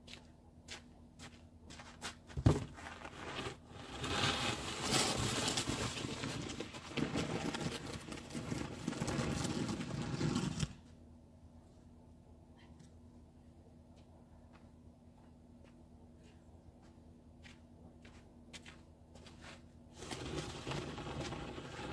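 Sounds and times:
snow shovel scraping pavement: 0:02.8 - 0:10.8, 0:19.9 - 0:21.9.

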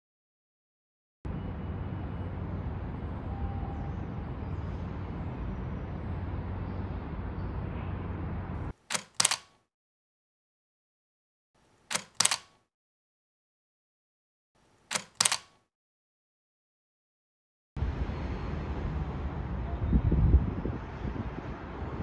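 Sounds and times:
distant city traffic rumble: 0:01.3 - 0:08.8, 0:17.8 - 0:22.0
camera shutter clicks: 0:08.9 - 0:09.6, 0:11.9 - 0:12.6, 0:14.9 - 0:15.6.

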